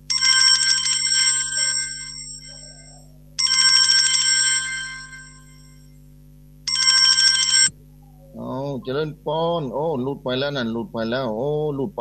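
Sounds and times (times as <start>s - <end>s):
steady low hum: 0.0s - 12.0s
electronic telephone ring: 0.1s - 5.9s, 6.7s - 7.7s.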